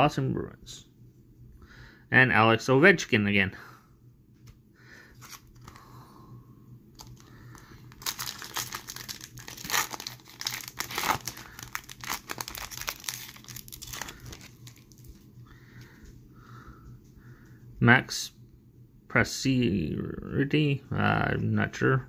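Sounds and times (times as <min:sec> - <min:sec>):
foil card pack tearing and crinkling: 0:05.2 - 0:05.8, 0:07.0 - 0:15.1.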